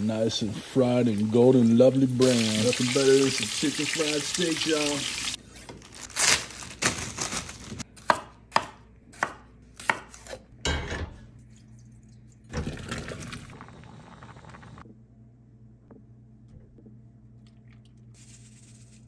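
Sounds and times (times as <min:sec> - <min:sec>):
knife chopping on wooden board: 0:08.0 - 0:10.4.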